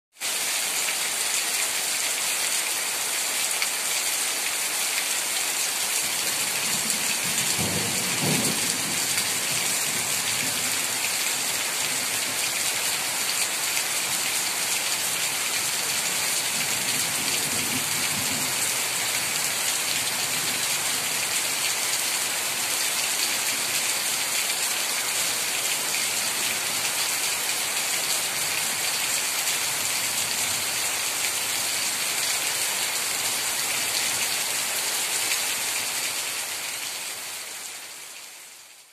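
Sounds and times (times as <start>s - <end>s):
rain falling on foliage: 0.1s - 38.9s.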